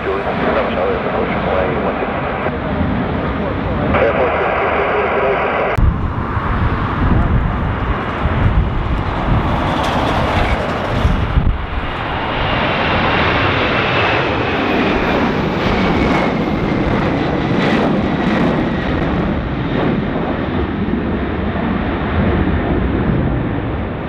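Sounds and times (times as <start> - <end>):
jet airliner engines roaring: 0.0 - 24.0
wind buffeting microphone: 5.8 - 24.0.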